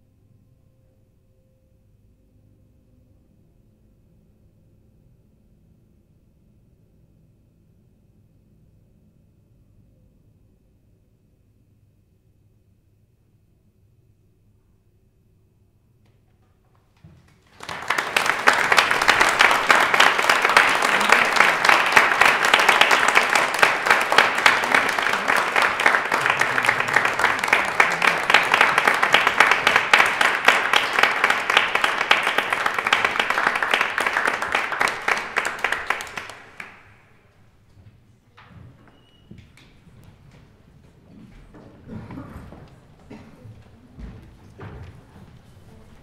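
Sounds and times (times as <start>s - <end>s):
audience applauding: 17.2s - 37.2s.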